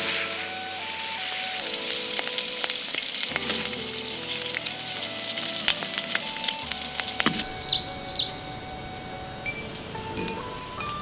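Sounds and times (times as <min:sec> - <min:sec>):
food sizzling in a pan: 0:00.0 - 0:08.3.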